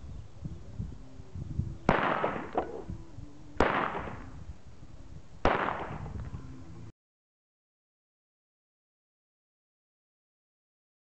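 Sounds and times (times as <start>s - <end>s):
pistol shots with echo: 1.9s - 2.9s, 3.6s - 4.4s, 5.4s - 6.1s.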